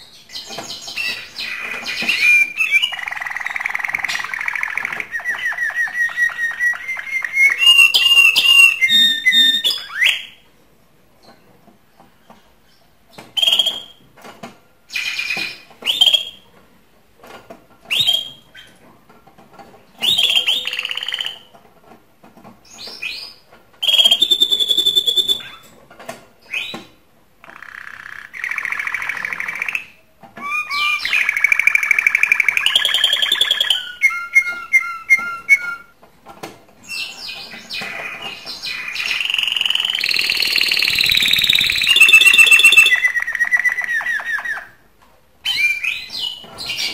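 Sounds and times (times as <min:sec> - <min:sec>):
canary singing trills: 0:00.0 - 0:10.4, 0:20.0 - 0:21.5, 0:27.4 - 0:35.9, 0:36.9 - 0:44.8.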